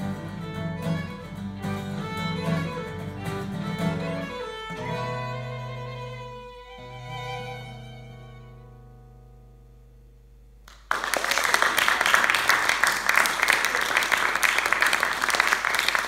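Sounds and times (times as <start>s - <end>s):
violin and guitar chord: 0.0s - 9.6s
audience applause: 10.7s - 16.0s.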